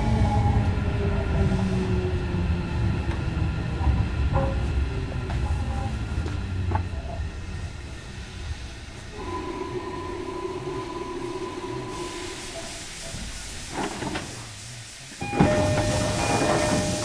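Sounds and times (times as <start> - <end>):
train interior hum: 0.0 - 17.0
loud hiss: 11.3 - 17.0.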